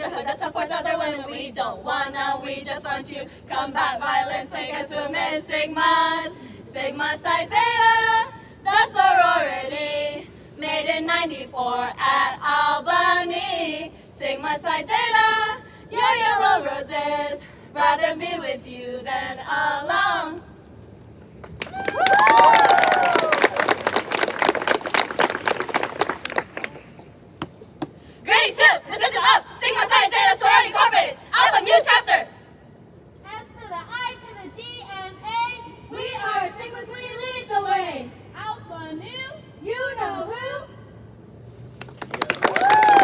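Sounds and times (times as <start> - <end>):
women singing a chant: 0.0 - 20.5, 28.2 - 32.4, 33.7 - 40.7.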